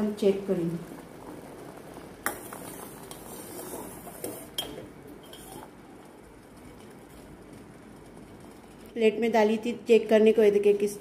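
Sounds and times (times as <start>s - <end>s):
liquid bubbling: 0.7s - 9.0s.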